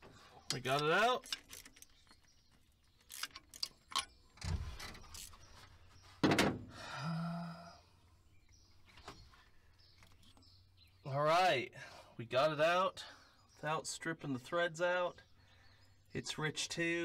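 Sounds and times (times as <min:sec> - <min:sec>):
hand tools clicking and clanking: 0:00.4 - 0:04.2.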